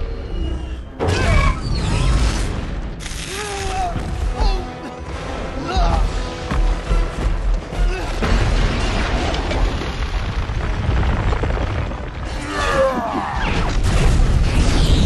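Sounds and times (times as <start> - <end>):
booms: 8.0 - 15.0
rumble of breaking rock: 8.1 - 15.0.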